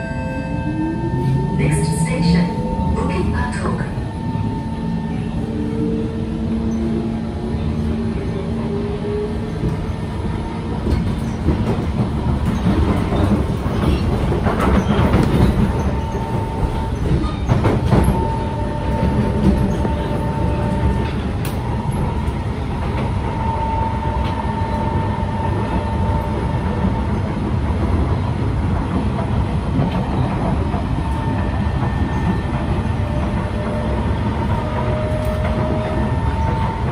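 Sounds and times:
wheels rumbling on rail: 0:00.0 - 0:36.9
track squeals: 0:10.9 - 0:27.0, 0:31.0 - 0:36.9.

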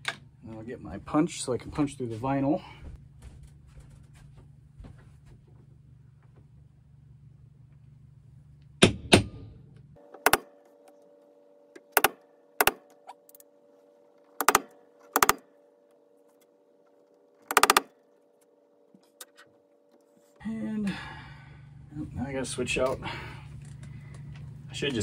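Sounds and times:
background hum: 0:00.0 - 0:25.0
hammer tapping metal punch: 0:11.8 - 0:12.9, 0:14.4 - 0:15.4, 0:17.4 - 0:17.9.

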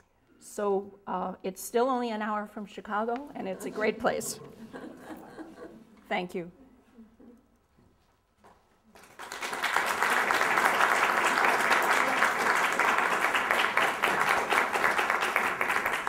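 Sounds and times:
audience applauding: 0:08.9 - 0:16.0.

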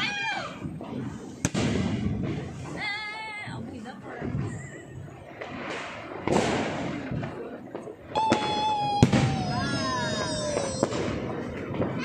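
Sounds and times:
firework bang: 0:00.0 - 0:03.1, 0:04.0 - 0:12.0
fireworks crackling burst: 0:00.0 - 0:12.0
falling whistling tone: 0:08.2 - 0:10.9.

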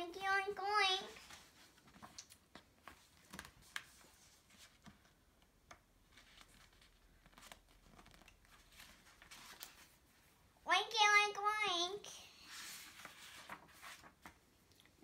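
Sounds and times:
paper pages rustling: 0:01.0 - 0:05.2, 0:06.0 - 0:10.3, 0:12.4 - 0:14.6.

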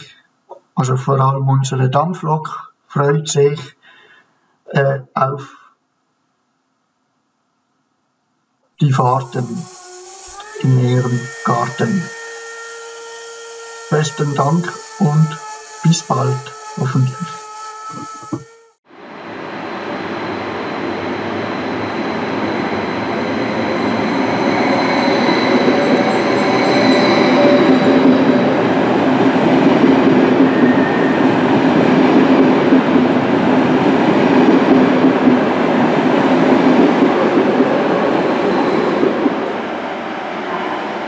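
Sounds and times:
thin high whine: 0:08.8 - 0:35.5.

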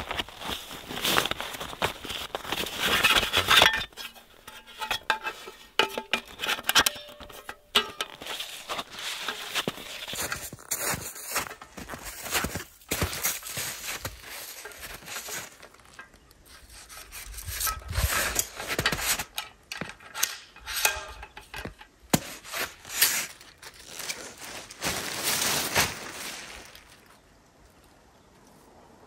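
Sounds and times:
footsteps crunching in snow: 0:00.0 - 0:06.4, 0:07.1 - 0:19.2, 0:22.1 - 0:27.1
snow shovel scraping packed snow: 0:00.0 - 0:15.8, 0:16.5 - 0:19.2, 0:22.2 - 0:26.6.

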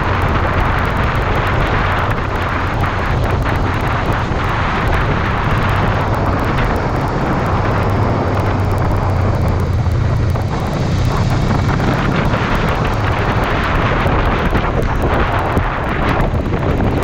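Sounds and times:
motorcycle engine running: 0:00.0 - 0:17.0
wind rush on microphone: 0:00.0 - 0:17.0.

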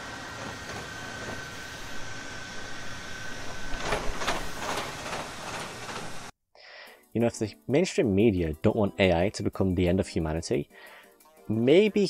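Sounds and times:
robot motors whining: 0:00.0 - 0:06.3.

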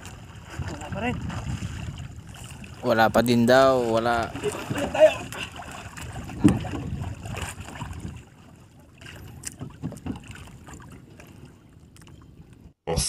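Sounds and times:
water sloshing against boat hull: 0:00.0 - 0:12.8
light knocks on wooden boat: 0:09.5 - 0:10.3.

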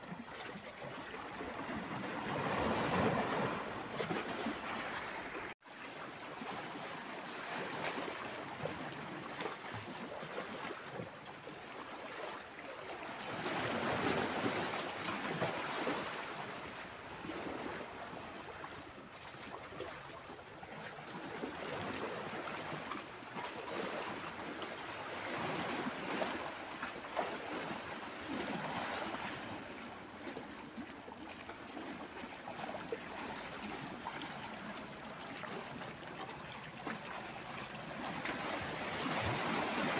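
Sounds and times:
waves splashing on boulders: 0:01.2 - 0:10.1, 0:13.2 - 0:18.4, 0:21.0 - 0:39.9.

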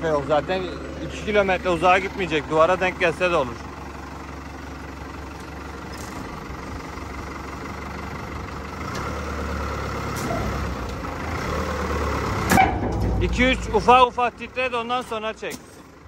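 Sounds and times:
tractor engine running: 0:00.0 - 0:16.0.

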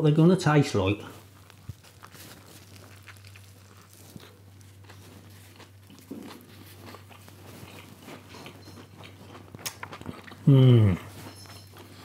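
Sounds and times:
person chewing food: 0:00.9 - 0:12.0
wet mouth clicks: 0:09.4 - 0:10.5.

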